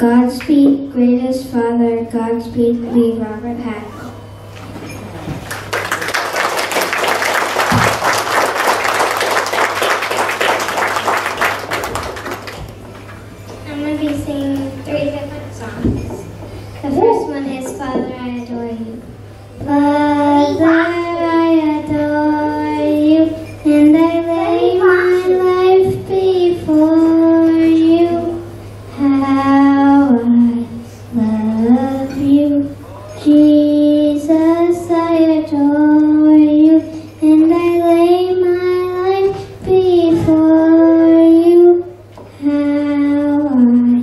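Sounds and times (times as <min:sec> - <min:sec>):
faint low hum: 0:00.0 - 0:44.0
girl singing into microphone: 0:19.6 - 0:44.0.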